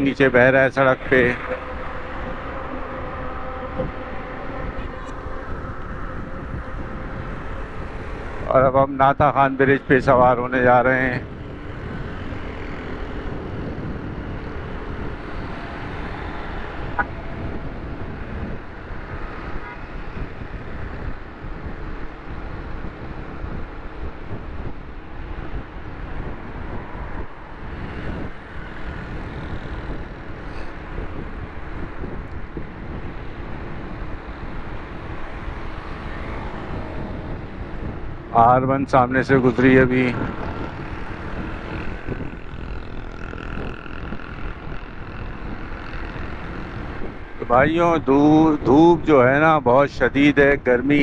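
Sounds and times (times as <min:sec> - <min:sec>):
traffic: 0:00.0 - 0:51.0
wind and road noise: 0:00.0 - 0:51.0.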